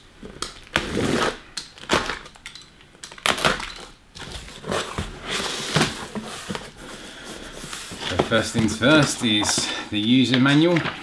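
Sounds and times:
cardboard flaps rustling: 0:04.2 - 0:11.0.

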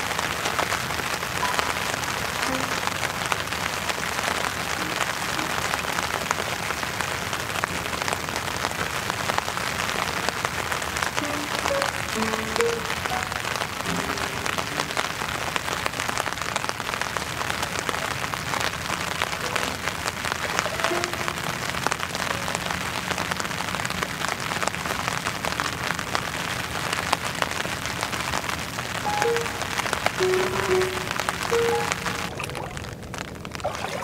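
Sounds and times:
steady rain pattering: 0:00.0 - 0:34.0.

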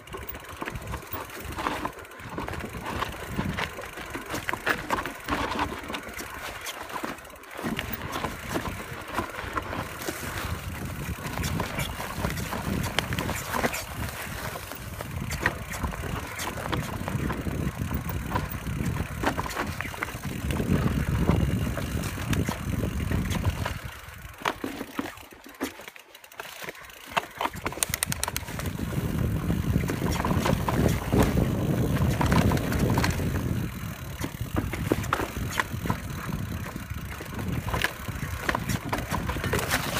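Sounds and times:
bike clicks and rattles: 0:00.0 - 0:39.9
tyres running over dirt: 0:00.0 - 0:39.9
wind buffeting microphone: 0:09.6 - 0:24.4, 0:27.6 - 0:39.9.

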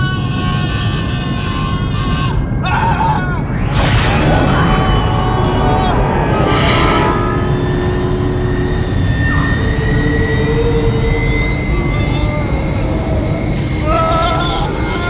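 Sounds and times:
high whine climbing in pitch: 0:03.0 - 0:15.0
spaceship engine rumble: 0:03.4 - 0:15.0.

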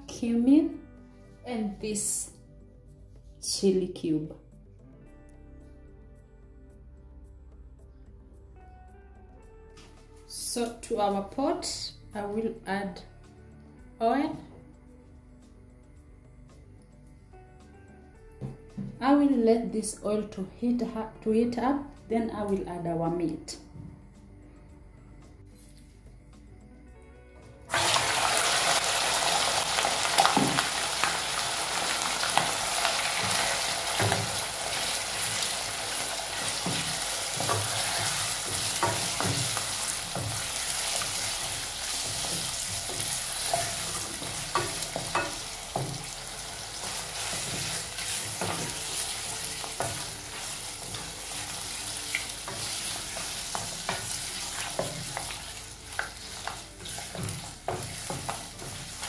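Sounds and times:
meat sizzling in hot oil: 0:27.7 - 0:59.0.

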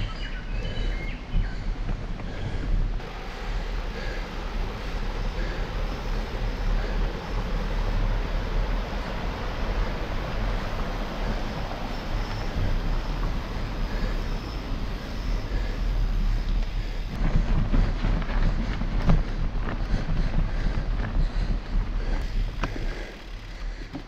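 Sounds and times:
wind on microphone: 0:00.0 - 0:23.1
bike rolling across bridge: 0:00.0 - 0:24.0
stream flowing: 0:03.0 - 0:16.4
bike bumps and rattles: 0:15.6 - 0:24.0.

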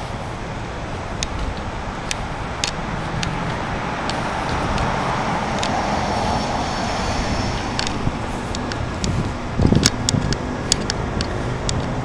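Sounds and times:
road traffic: 0:00.0 - 0:12.0
sharp clicks: 0:01.2 - 0:04.9, 0:05.5 - 0:05.9, 0:07.6 - 0:12.0.

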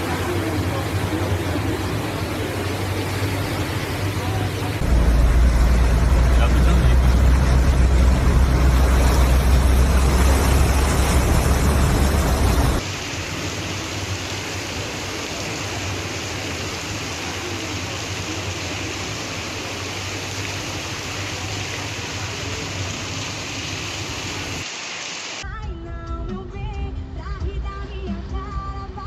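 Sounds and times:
heavy low rumble: 0:00.0 - 0:12.8
car splashing through floodwater: 0:00.0 - 0:24.6
heavy rain: 0:00.0 - 0:25.4
running water: 0:00.0 - 0:25.4.

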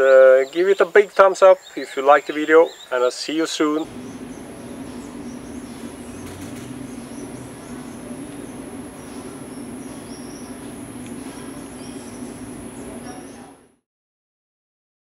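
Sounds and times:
bird chirps: 0:00.0 - 0:13.6
high-pitched insect whine: 0:03.8 - 0:13.7
low steady hum: 0:03.8 - 0:13.8.

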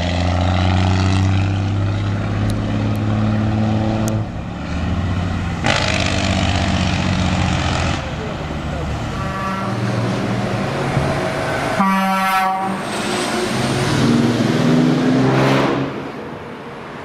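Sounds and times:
truck diesel engines running: 0:00.0 - 0:17.0
truck air horn blast: 0:05.6 - 0:06.3, 0:09.1 - 0:10.2, 0:11.7 - 0:13.6.

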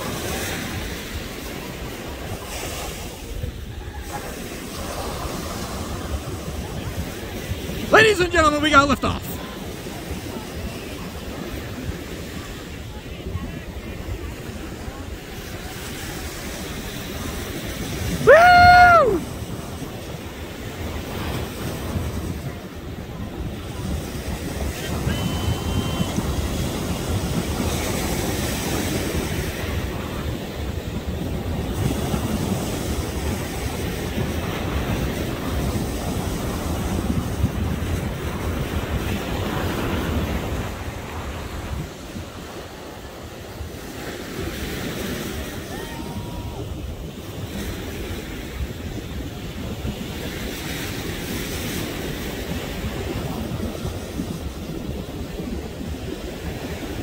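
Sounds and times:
ocean surf: 0:00.0 - 0:57.0
wind buffeting microphone: 0:09.4 - 0:57.0.

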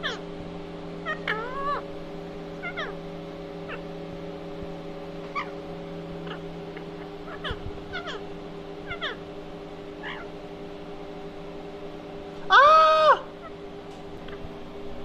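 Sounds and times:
steady low hum: 0:00.0 - 0:15.0
parakeet chirping: 0:02.6 - 0:02.9, 0:05.2 - 0:05.6, 0:06.2 - 0:08.2, 0:08.8 - 0:09.2, 0:10.0 - 0:10.3.

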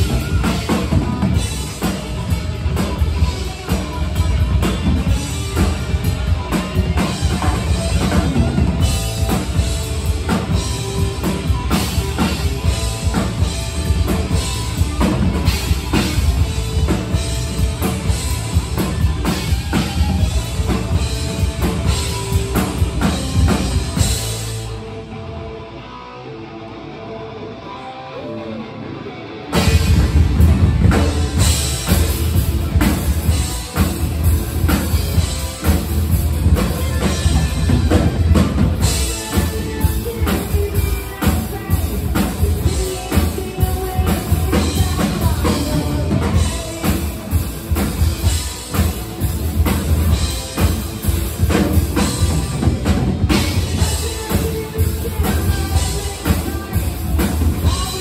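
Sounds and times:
drum kit beat: 0:00.0 - 0:24.8, 0:29.5 - 0:58.0
live rock band playing: 0:00.0 - 0:58.0.

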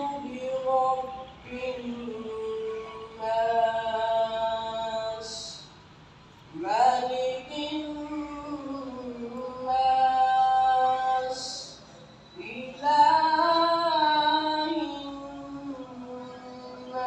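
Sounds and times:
person chanting over loudspeakers: 0:00.0 - 0:05.8, 0:06.6 - 0:17.0.

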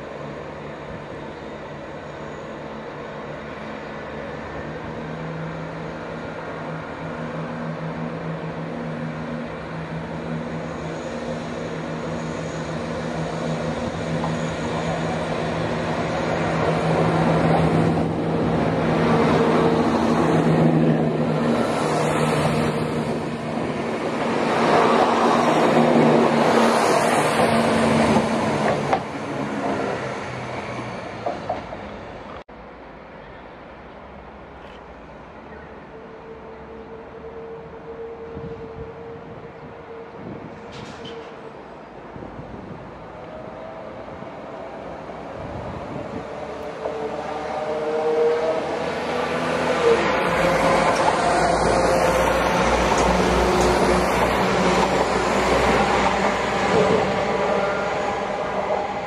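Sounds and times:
diesel train engines humming: 0:00.0 - 0:59.0
train wheel and air noise: 0:36.7 - 0:59.0.

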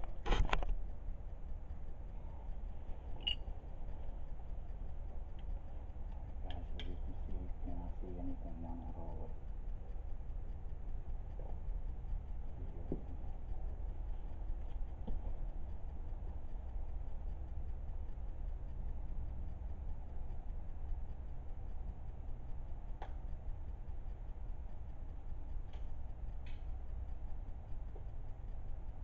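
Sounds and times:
low rumble and hiss: 0:00.0 - 0:29.0.

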